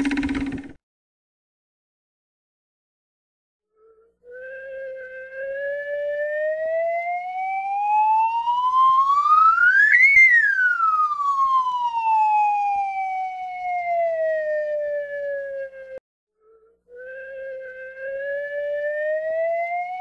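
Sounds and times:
gliding whistle-like tone: 3.8 - 6.4, 8.6 - 11.4, 15.4 - 20.0.

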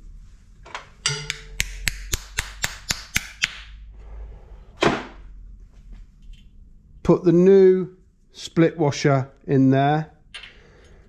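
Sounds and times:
hammer tapping on metal: 1.0 - 3.6.

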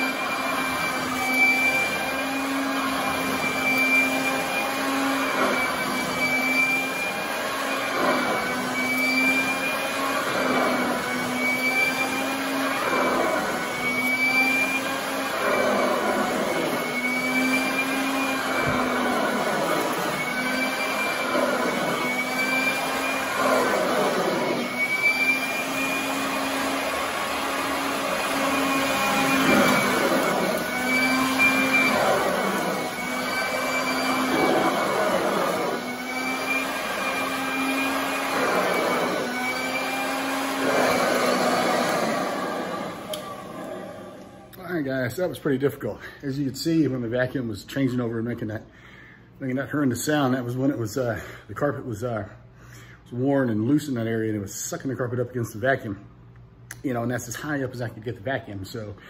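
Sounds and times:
vacuum cleaner motor hum and whine: 0.0 - 46.1.

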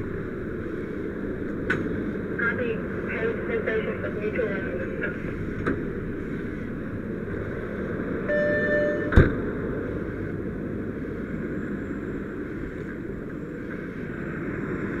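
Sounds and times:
fire engine running: 0.0 - 15.0
short electronic tone: 8.3 - 9.2.

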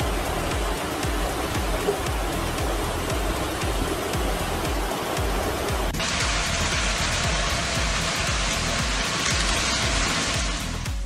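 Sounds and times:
music with deep beat: 0.0 - 11.0
rushing hiss: 0.0 - 11.0.

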